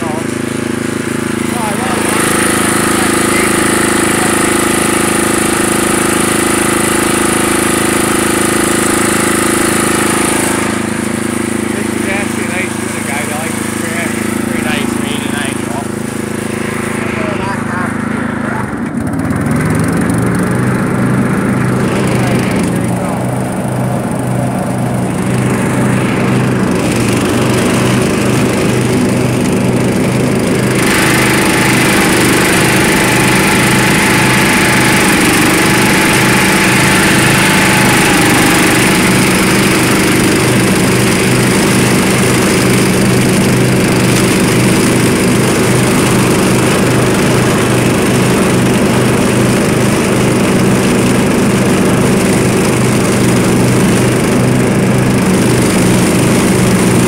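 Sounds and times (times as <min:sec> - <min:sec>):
lawn mower engine running: 0:00.0 - 0:57.0.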